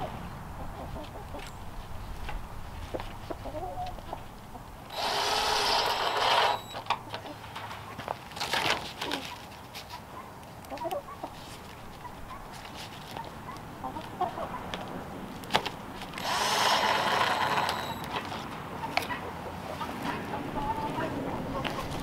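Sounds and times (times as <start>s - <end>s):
fowl clucking and chirping: 0.6s - 1.6s, 3.2s - 4.7s, 10.1s - 11.4s, 13.2s - 14.7s, 18.7s - 22.0s
cordless drill whining: 4.9s - 6.9s, 16.2s - 18.2s.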